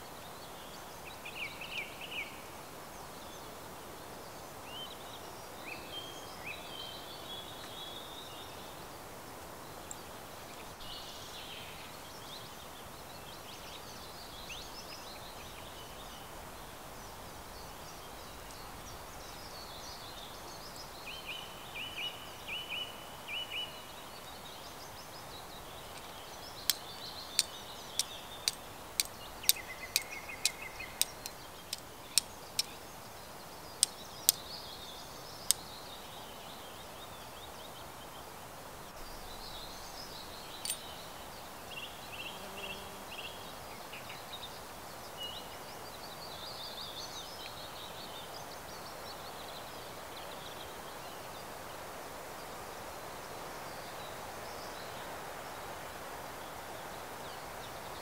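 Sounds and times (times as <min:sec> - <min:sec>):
small birds singing: 0:00.0 - 0:58.0
flint struck with fire steel: 0:27.4 - 0:32.7.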